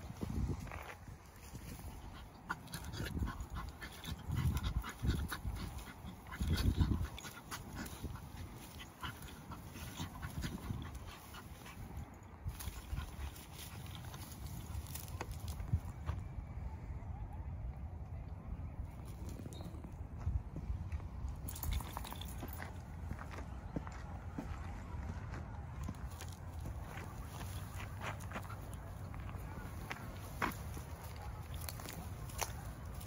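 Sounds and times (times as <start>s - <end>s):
dry grass rustling: 0.0s - 16.0s, 25.8s - 33.0s.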